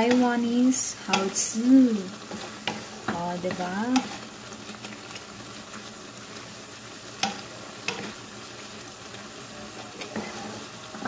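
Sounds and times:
spatula clacking against pan: 0.0 - 1.6, 2.2 - 4.2, 7.2 - 8.2
food sizzling in a wok: 0.0 - 11.0
spatula stirring noodles in wok: 0.0 - 11.0.

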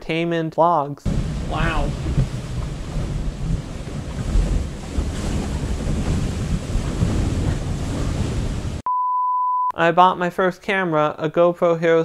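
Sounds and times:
wind buffeting microphone: 1.1 - 8.9.

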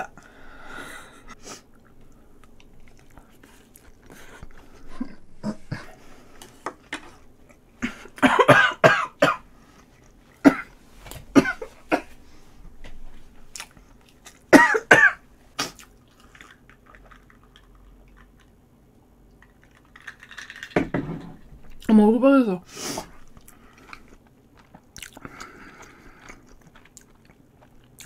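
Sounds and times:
woman coughing and spluttering: 7.8 - 9.4, 10.4 - 10.7, 11.3 - 12.1, 14.5 - 15.8.

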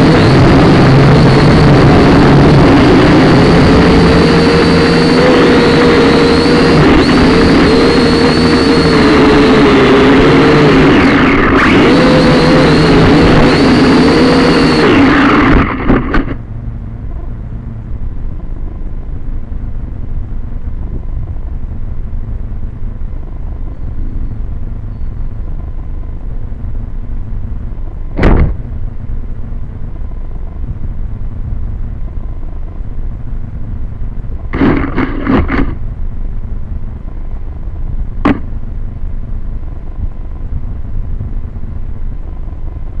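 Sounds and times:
toy drone motor whine: 0.0 - 16.4
wind rumbling on microphone: 0.0 - 43.0.

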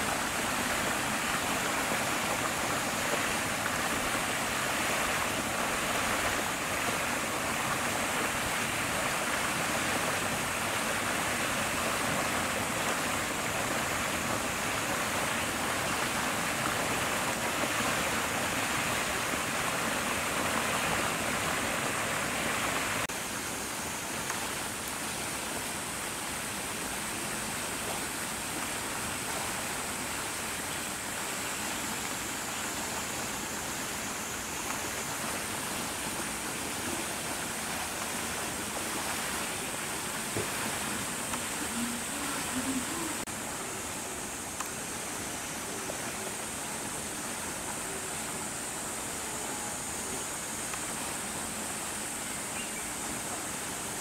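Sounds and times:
outdoor background hiss: 0.0 - 54.0
faint click: 44.6 - 44.8.

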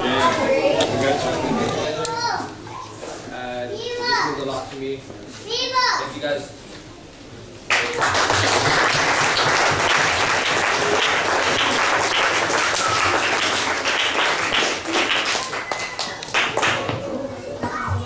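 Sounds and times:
people clapping: 7.7 - 17.1.

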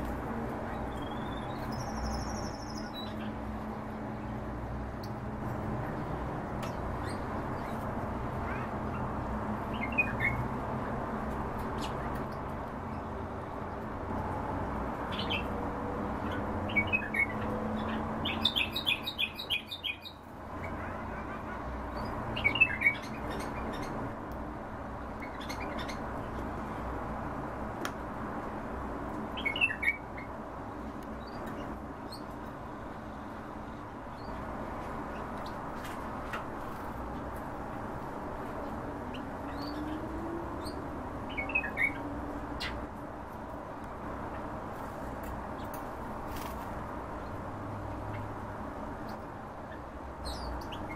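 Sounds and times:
finches chirping: 0.7 - 3.4, 39.1 - 42.8.

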